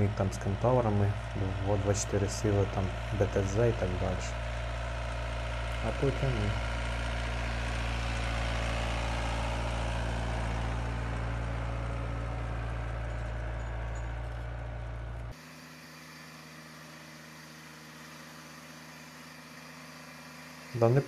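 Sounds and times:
tractor engine running: 0.0s - 21.0s.

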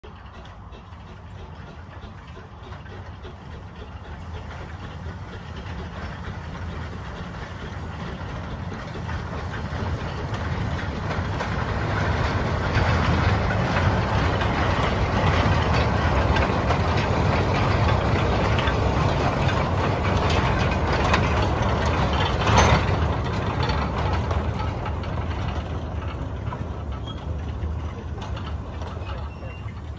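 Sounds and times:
steam locomotive passing: 0.0s - 29.9s
wagons rattling over rails: 0.0s - 29.9s.

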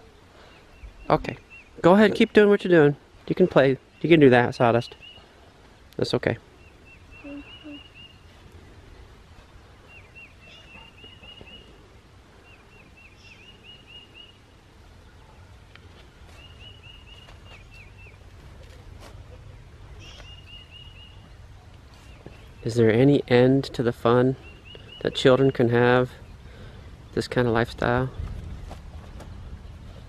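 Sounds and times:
low outdoor background: 0.0s - 30.0s
songbird trilling: 6.6s - 8.3s, 20.0s - 21.2s.

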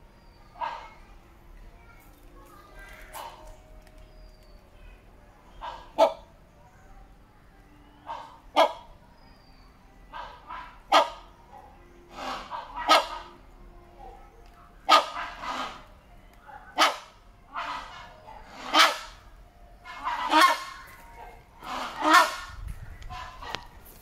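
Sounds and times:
hornbill barking calls: 0.4s - 1.0s, 2.8s - 3.6s, 5.5s - 6.4s, 7.9s - 9.0s, 10.1s - 23.8s.

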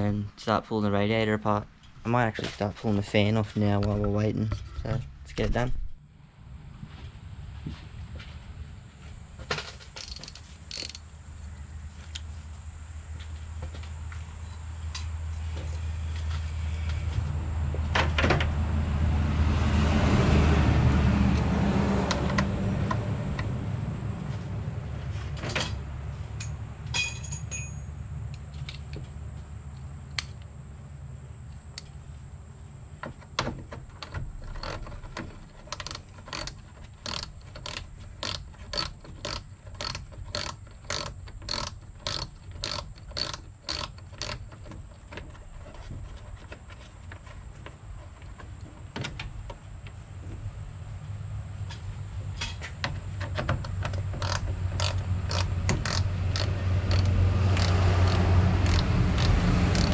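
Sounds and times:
ratchet wrench clicking: 10.0s - 11.0s, 34.0s - 44.7s, 54.2s - 59.9s.

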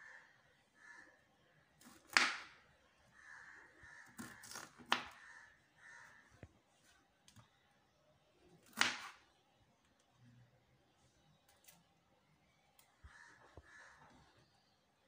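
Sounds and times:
knife chopping on wooden board: 1.8s - 2.5s, 8.6s - 9.2s.

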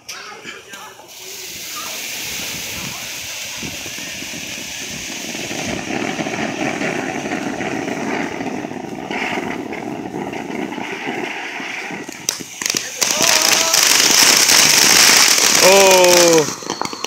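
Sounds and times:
firework fountain hissing: 0.5s - 17.0s.

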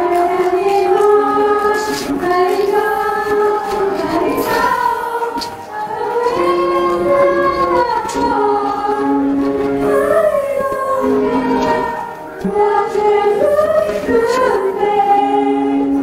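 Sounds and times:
voices singing a melody: 0.0s - 16.0s.

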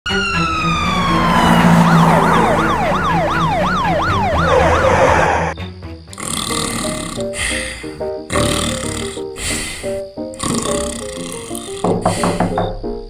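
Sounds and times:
police siren wailing: 0.0s - 5.6s.

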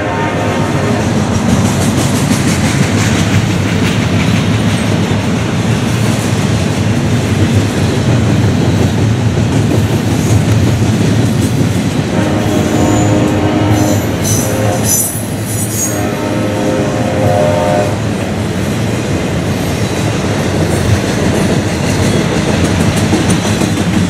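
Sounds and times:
freight train rumbling past: 0.0s - 24.0s
wheels clacking over rails: 1.1s - 12.1s, 19.3s - 24.0s.

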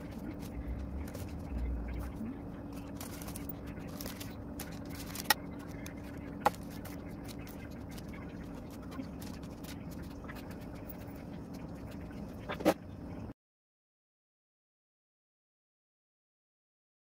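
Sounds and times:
faint ticks and scrapes: 0.0s - 12.6s
steady low hum: 0.0s - 13.4s.

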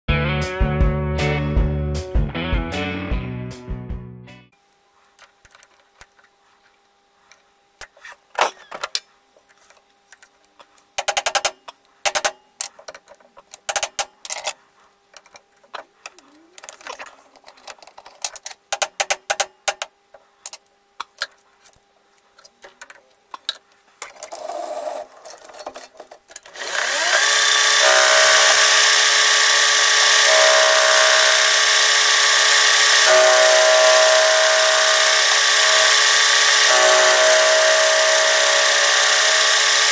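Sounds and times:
lathe running: 26.5s - 39.9s.

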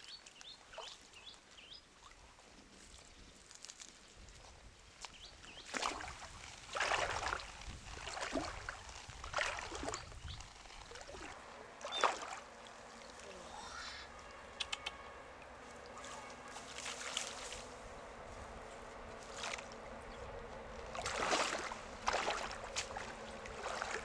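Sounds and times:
wading through stream water: 0.1s - 24.0s.

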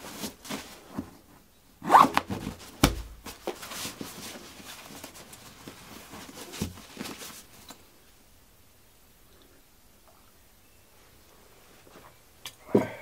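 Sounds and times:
soft thumps: 2.4s - 3.5s.

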